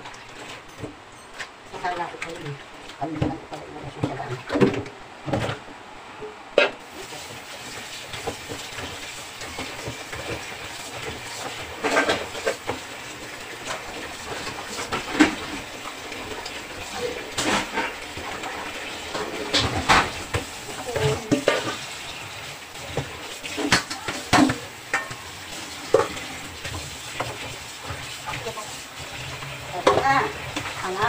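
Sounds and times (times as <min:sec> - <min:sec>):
chicken rinsed by hand: 0:06.8 - 0:31.0
tap water running into sink: 0:06.8 - 0:31.0.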